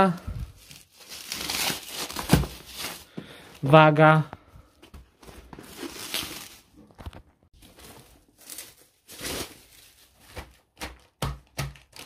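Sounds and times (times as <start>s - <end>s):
bubble wrap crinkling: 0.4s - 3.1s, 5.5s - 11.1s.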